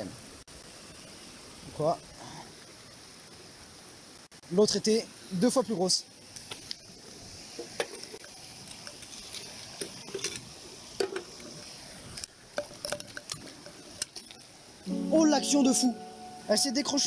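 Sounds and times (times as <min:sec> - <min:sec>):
stream rushing: 0:04.7 - 0:17.0.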